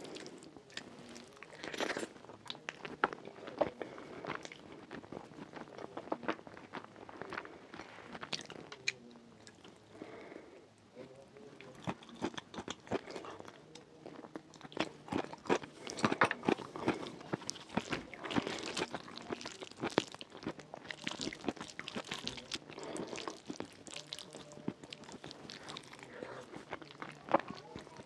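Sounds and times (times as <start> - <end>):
close chewing and mouth sounds: 0.0 - 10.3, 11.0 - 28.0
fingers squishing food: 11.6 - 28.0.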